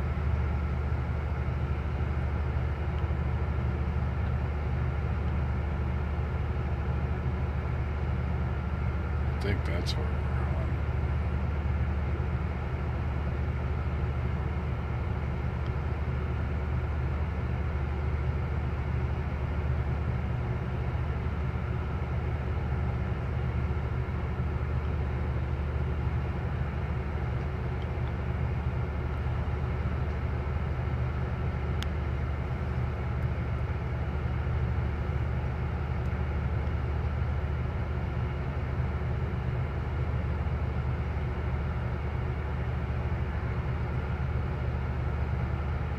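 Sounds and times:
ship engines droning: 0.0s - 45.9s
steady hum: 7.5s - 17.5s.

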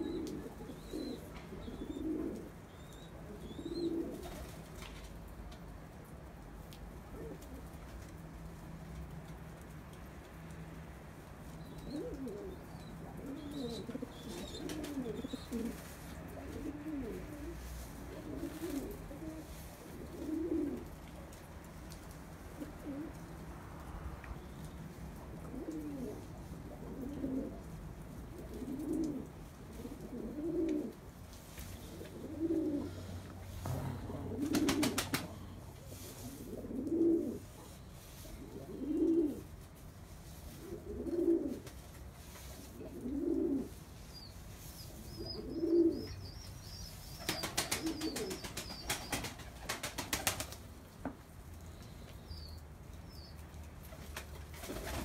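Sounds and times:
pigeons cooing: 0.0s - 4.6s, 11.6s - 21.3s, 22.5s - 23.3s, 25.2s - 31.1s, 31.7s - 39.6s, 40.4s - 41.8s, 42.4s - 50.5s
wings flapping: 14.3s - 16.7s, 34.3s - 35.5s, 47.2s - 50.7s, 53.9s - 55.0s.

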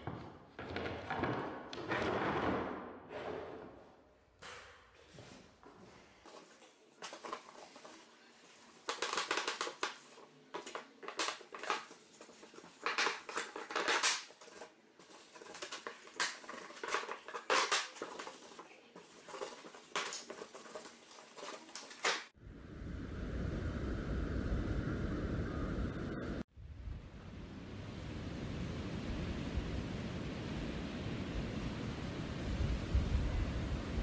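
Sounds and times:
cloth rag rubbing on wood: 6.3s - 22.3s.

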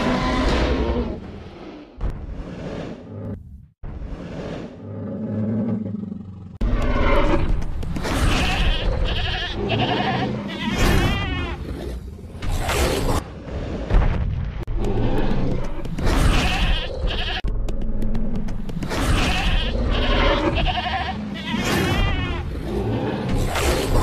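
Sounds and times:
goat bleating: 8.3s - 11.6s, 16.3s - 17.4s, 19.2s - 22.4s.

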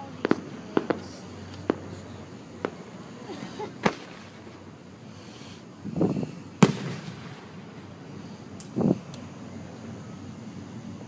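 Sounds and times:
fireworks bangs: 0.0s - 4.8s, 5.9s - 9.2s.

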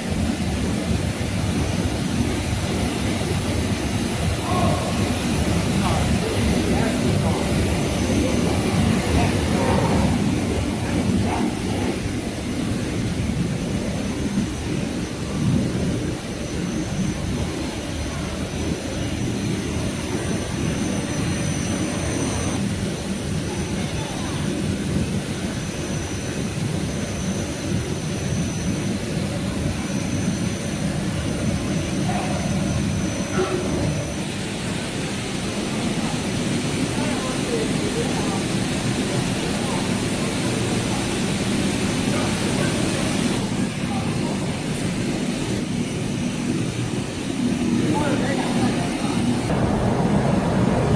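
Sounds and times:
machinery rumbling: 30.8s - 50.9s.

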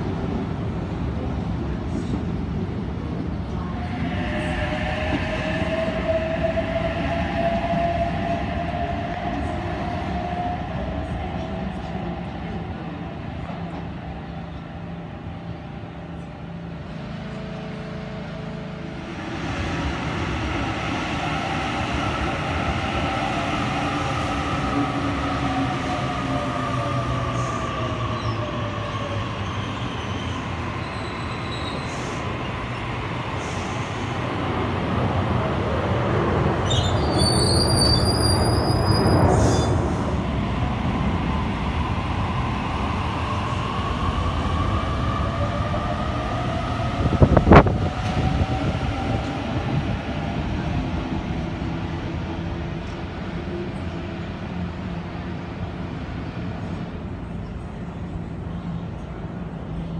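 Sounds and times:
high-pitched train squeal: 3.7s - 12.6s, 20.9s - 34.2s, 36.6s - 40.3s.

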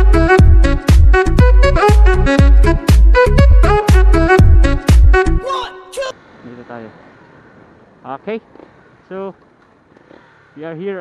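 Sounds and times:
music with heavy bass beat: 0.0s - 5.4s.

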